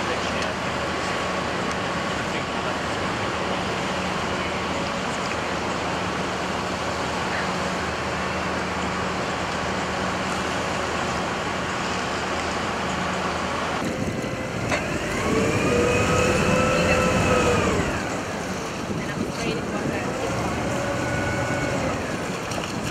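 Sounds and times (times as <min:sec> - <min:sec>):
boat engine revving with whine: 0:00.0 - 0:22.9
boat engine running: 0:00.0 - 0:22.9
water noise: 0:00.0 - 0:22.9
wind noise: 0:13.8 - 0:22.9.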